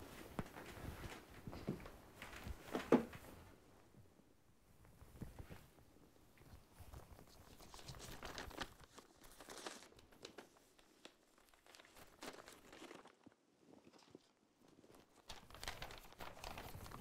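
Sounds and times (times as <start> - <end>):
paper crinkling and rustling: 6.4 - 17.0.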